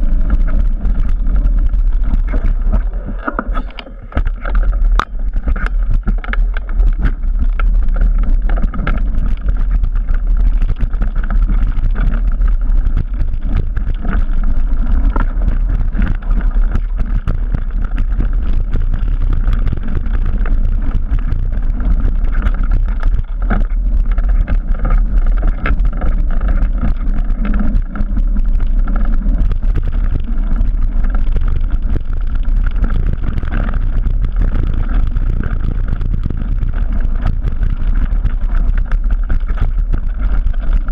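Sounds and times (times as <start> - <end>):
bike rattling and knocking: 0.0 - 40.9
tyres rumbling on dirt: 0.0 - 40.9
wind on microphone: 0.0 - 40.9.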